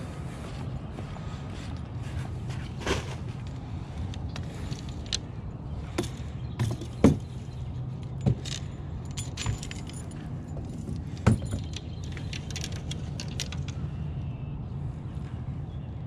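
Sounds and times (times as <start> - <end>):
steady low hum: 0.0 - 16.0
fishing rods clicking and rattling: 2.8 - 14.1
light metallic jingling: 5.8 - 13.8.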